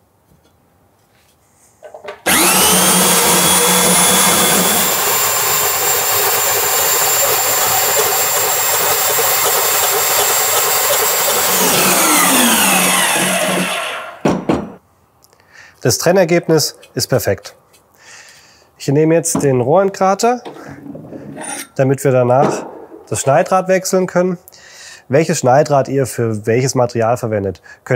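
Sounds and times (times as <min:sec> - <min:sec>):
pipe cutter metallic whirring scrape: 0:02.3 - 0:14.2, 0:21.4 - 0:21.8.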